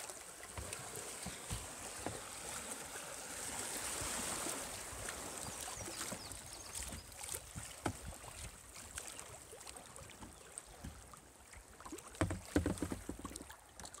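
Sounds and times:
river water lapping on hull: 0:00.0 - 0:14.0
splashes and knocks: 0:00.0 - 0:14.0.

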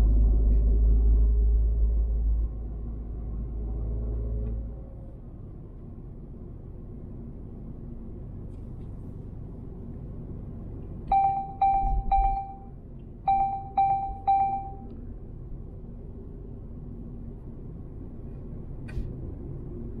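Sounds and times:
car road rumble: 0:00.0 - 0:20.0
short electronic beeps: 0:11.1 - 0:12.7, 0:13.3 - 0:14.9.

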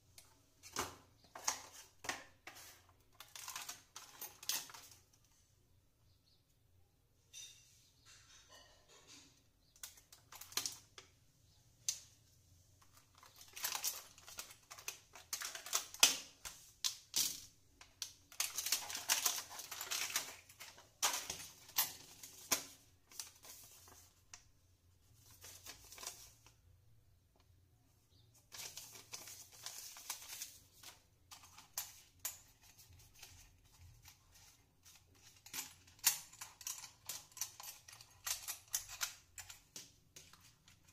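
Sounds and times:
plastic packaging clicks and crinkles: 0:00.1 - 0:05.4, 0:09.8 - 0:11.2, 0:12.8 - 0:24.5, 0:25.2 - 0:26.6, 0:28.4 - 0:40.9.

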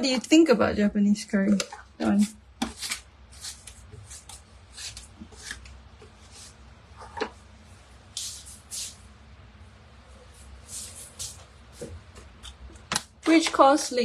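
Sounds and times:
hands rustling and brushing: 0:10.2 - 0:12.4.

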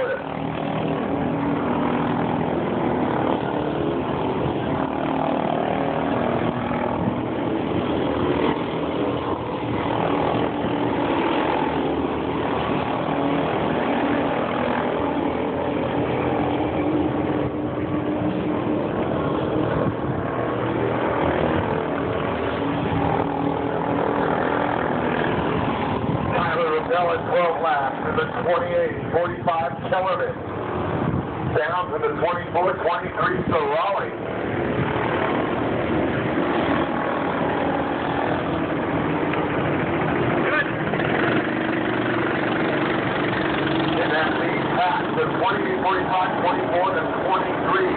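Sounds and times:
kart engines racing: 0:00.0 - 0:47.9.

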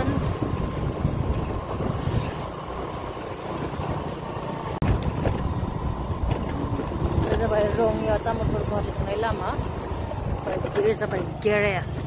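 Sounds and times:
wind rumble on microphone: 0:00.0 - 0:02.6, 0:04.8 - 0:10.8
motorcycle engine and road noise: 0:00.0 - 0:12.0.

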